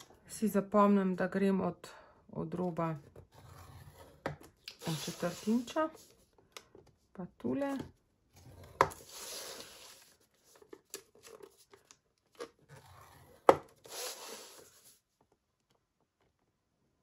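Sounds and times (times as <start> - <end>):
papery scraping: 8.4 - 11.8, 12.7 - 15.0.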